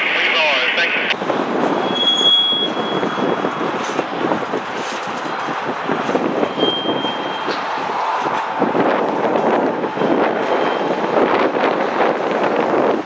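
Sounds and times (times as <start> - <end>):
freight train rumble: 0.0 - 13.0
high wheel squeal: 1.7 - 4.0, 6.4 - 8.2, 10.0 - 11.1
train wheels clattering on rails: 2.7 - 13.0.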